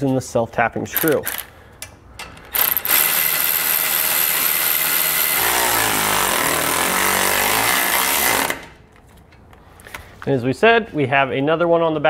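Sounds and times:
electric ratchet driving screw: 1.0s - 1.5s, 2.4s - 8.8s.

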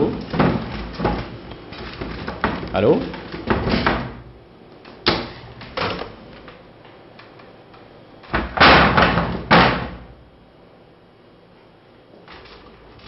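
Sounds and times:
panels crashing onto a desk: 0.0s - 4.3s, 5.0s - 6.2s, 8.3s - 10.2s.

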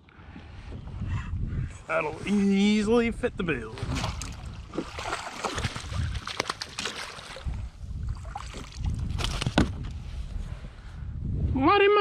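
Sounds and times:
water splashing and dripping: 3.8s - 7.6s
net knocking against kayak hull: 8.5s - 9.9s.

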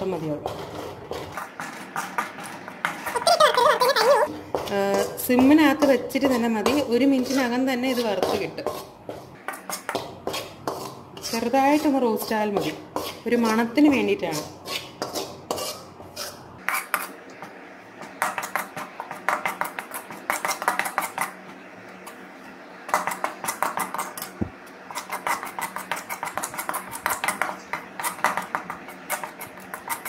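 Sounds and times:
spoon scraping metal pan: 0.0s - 17.2s, 18.0s - 22.2s, 22.9s - 30.0s.

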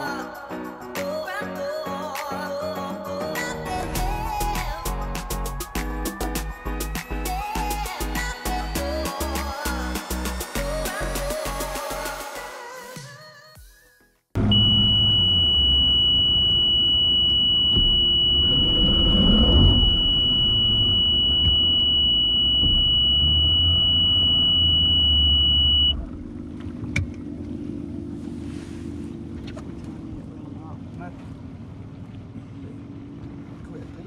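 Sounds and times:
high-pitched tone: 14.4s - 26.0s
outboard motor rumble: 14.4s - 34.0s
wind: 17.6s - 21.9s, 25.9s - 34.0s.

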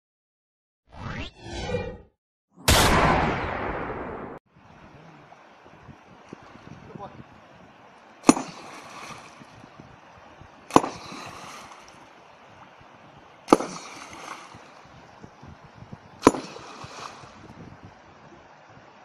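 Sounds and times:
water splashing: 4.6s - 19.0s
sledgehammer cracking on rock: 8.2s - 8.7s, 10.7s - 11.2s, 13.5s - 14.0s, 16.2s - 16.6s.

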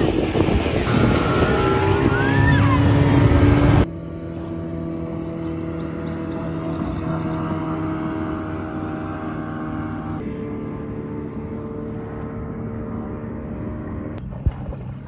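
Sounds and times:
rushing water: 0.0s - 5.1s
loud wind: 0.0s - 9.3s
motorboat engine: 0.0s - 15.0s.

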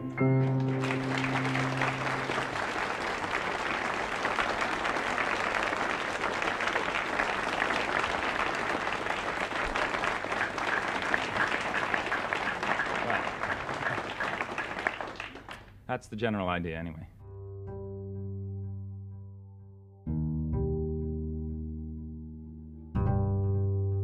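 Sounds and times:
studio audience applauding: 0.0s - 15.8s.

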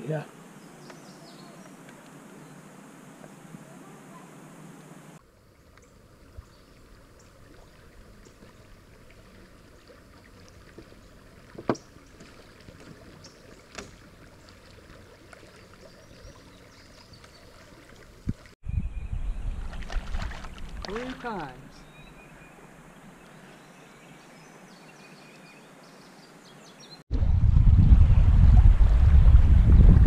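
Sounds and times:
river water washing: 0.0s - 18.6s, 19.7s - 26.4s
light knocks on canoe: 11.5s - 13.0s.

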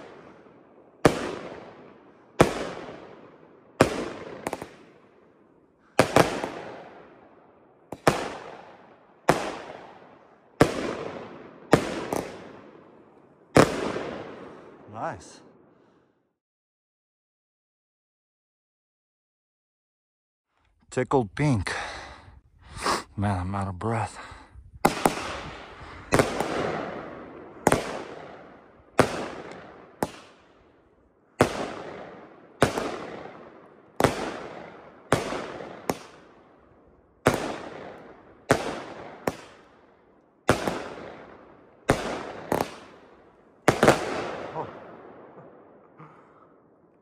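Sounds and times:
firework bangs echoing: 0.0s - 5.2s, 5.9s - 15.6s, 24.8s - 30.6s, 31.4s - 36.6s, 37.2s - 45.9s.

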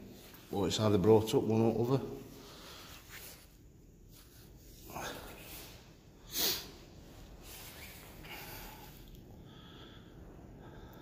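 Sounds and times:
faint breathing: 2.2s - 3.6s, 4.2s - 11.0s.

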